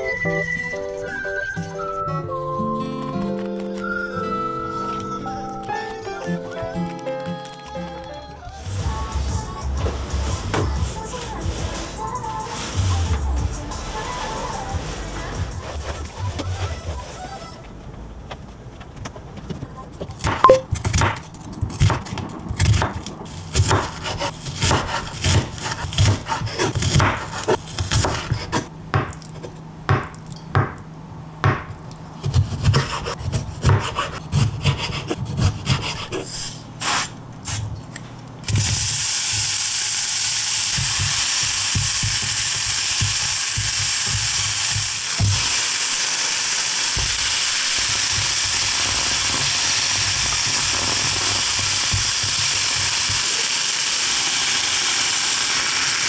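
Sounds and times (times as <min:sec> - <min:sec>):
knife chopping on wooden board: 0:22.6 - 0:29.2, 0:31.4 - 0:36.2
food sizzling in oil: 0:38.5 - 0:53.2.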